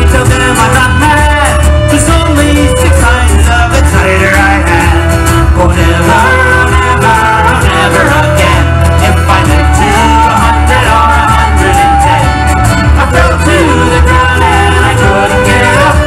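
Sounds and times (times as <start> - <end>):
fiddle melody: 0.0 - 16.0
strummed guitars: 0.0 - 16.0.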